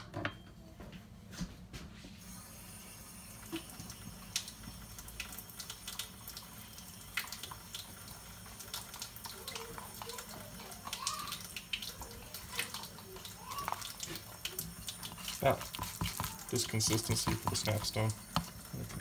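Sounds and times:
wet scraping and clicking in a bowl: 0:07.1 - 0:19.0.

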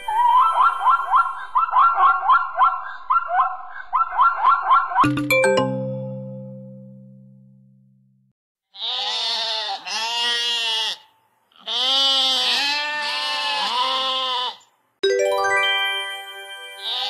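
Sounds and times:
stepped chime jingle: 0:05.1 - 0:08.1, 0:15.0 - 0:17.0
sheep bleating: 0:08.8 - 0:14.7.

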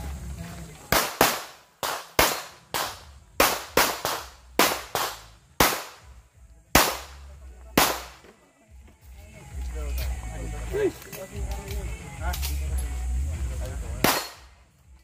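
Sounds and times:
pistol shots echoing: 0:00.9 - 0:06.1, 0:06.8 - 0:07.2, 0:07.8 - 0:08.2, 0:14.0 - 0:14.5.

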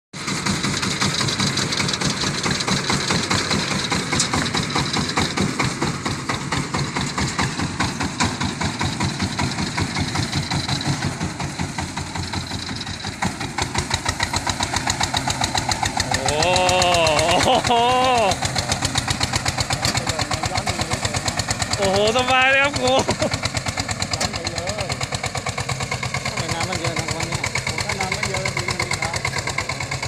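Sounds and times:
diesel engine running: 0:00.2 - 0:30.0.

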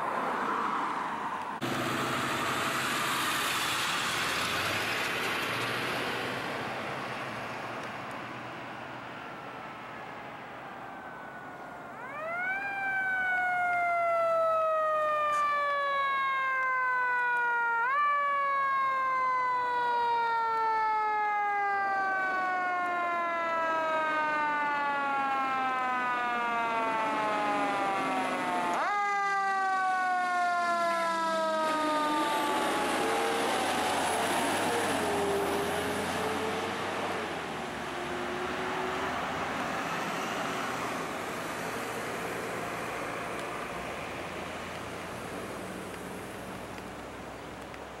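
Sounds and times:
truck engine and tyres passing: 0:00.0 - 0:20.3, 0:29.8 - 0:48.0
fire engine siren: 0:00.0 - 0:48.0
lower wavering siren wail: 0:09.3 - 0:44.4.

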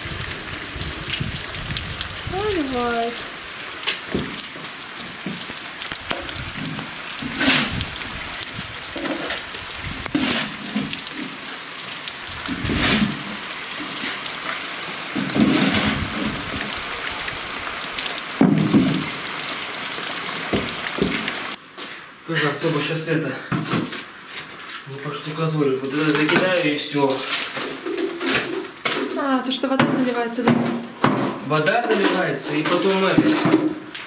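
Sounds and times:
heavy rain: 0:00.0 - 0:21.6
knocks and scrapes: 0:06.1 - 0:07.9, 0:09.0 - 0:11.3, 0:12.5 - 0:13.2, 0:29.8 - 0:33.8.

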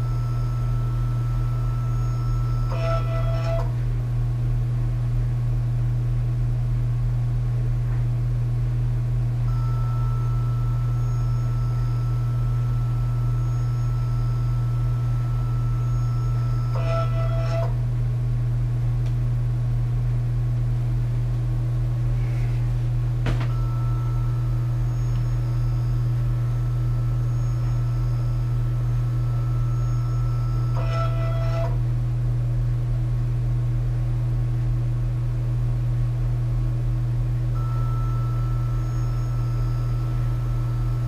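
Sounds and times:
printer humming: 0:00.0 - 0:03.9, 0:09.4 - 0:18.0, 0:22.2 - 0:31.9, 0:37.5 - 0:41.0
motor whine: 0:00.0 - 0:04.1, 0:09.2 - 0:18.0, 0:22.2 - 0:31.9, 0:37.5 - 0:41.0.

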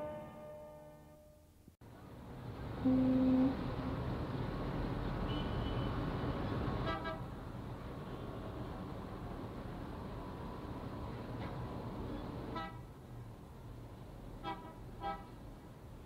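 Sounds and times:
loud horn-like tone: 0:00.0 - 0:01.4, 0:02.8 - 0:03.6
steady noisy rumble: 0:01.8 - 0:05.2.

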